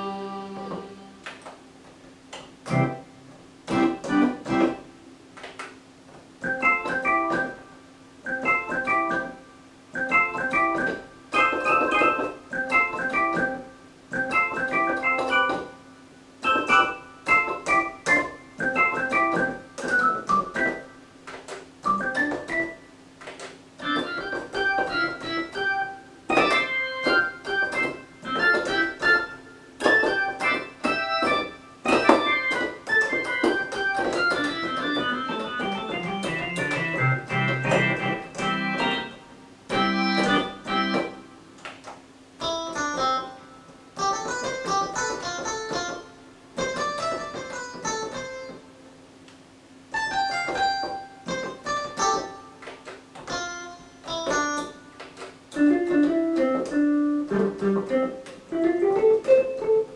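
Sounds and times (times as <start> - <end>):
synthesizer phrases: 0.0 - 1.4.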